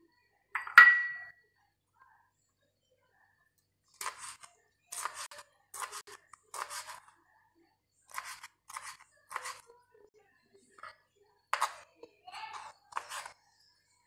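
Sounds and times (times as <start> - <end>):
knife chopping on cutting board: 4.0 - 7.0, 8.1 - 9.6, 11.6 - 11.8, 12.5 - 13.3.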